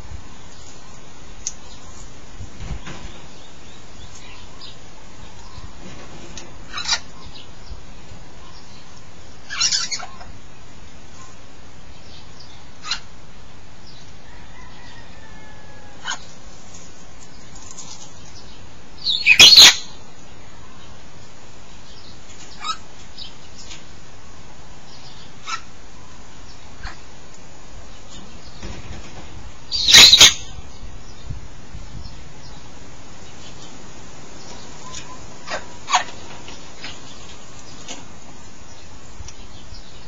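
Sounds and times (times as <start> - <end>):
parrot loud screech: 19.1 - 19.9, 29.8 - 30.4.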